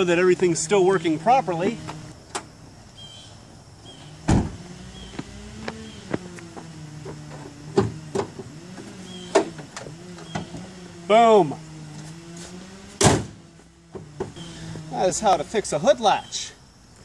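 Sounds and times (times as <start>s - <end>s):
hood latch thump: 13.0s - 14.4s.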